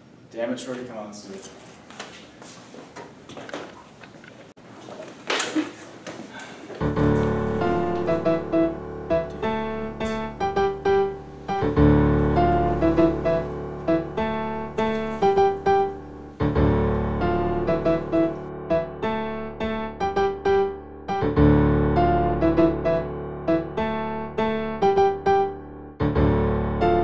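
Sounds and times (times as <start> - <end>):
piano music: 6.8 - 27.0.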